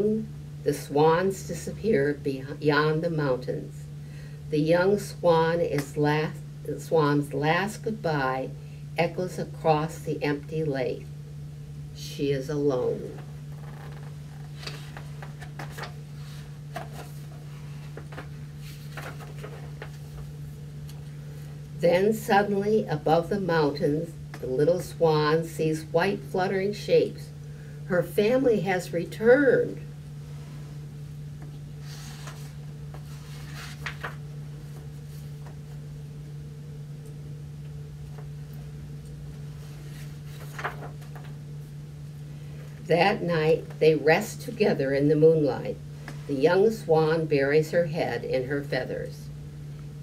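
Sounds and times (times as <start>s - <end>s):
steady low hum: 0.0s - 50.0s
book pages rustling: 13.2s - 21.5s, 31.4s - 35.8s, 39.6s - 41.4s.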